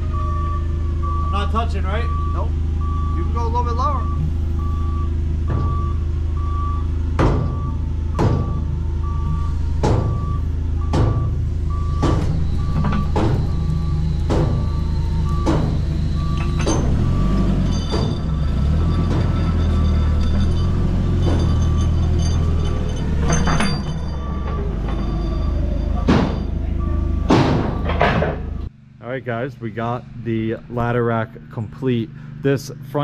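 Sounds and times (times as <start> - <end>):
reversing alarm beeps: 0.0 - 28.7
forklift engine running: 0.0 - 33.0
sharp knocks: 7.2 - 8.7, 9.8 - 10.3, 10.9 - 11.4, 12.0 - 17.1, 26.0 - 26.5, 27.3 - 28.5.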